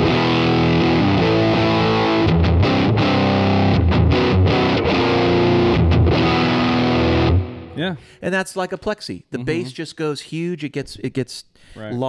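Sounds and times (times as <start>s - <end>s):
distorted electric guitar chords: 0.0s - 7.8s.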